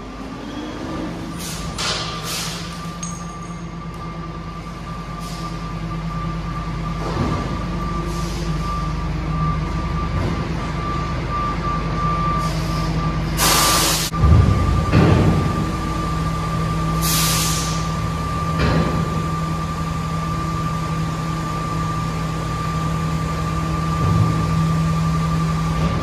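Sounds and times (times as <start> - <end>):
garbage truck engine hum: 0.0 - 26.0
air hissing burst: 13.4 - 14.1, 17.0 - 17.9.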